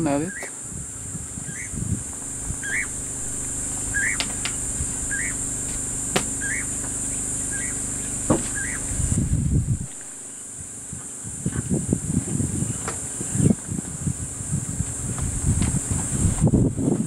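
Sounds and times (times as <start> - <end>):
insects droning: 0.0 - 17.0
low rumbling noise: 1.0 - 10.8, 14.0 - 17.0
low steady hum: 1.1 - 10.7, 13.4 - 17.0
bird rising call: 1.4 - 9.2.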